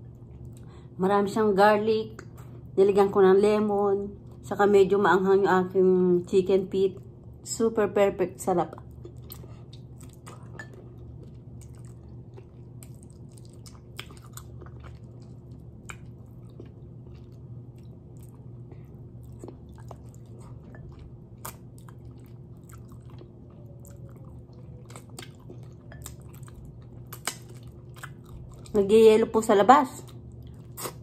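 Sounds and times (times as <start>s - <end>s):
steady low hum: 0.0s - 31.0s
person chewing and biting: 8.9s - 28.8s, 30.1s - 31.0s.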